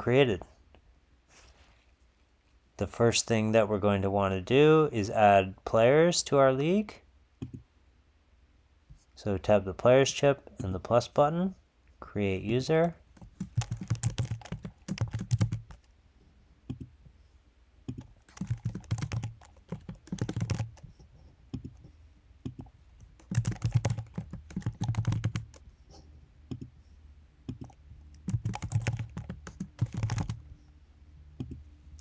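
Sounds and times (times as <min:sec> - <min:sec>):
computer keyboard typing: 0:13.1 - 0:15.9, 0:17.9 - 0:21.8, 0:22.4 - 0:25.7, 0:26.5 - 0:26.7, 0:27.5 - 0:30.4, 0:31.4 - 0:31.6.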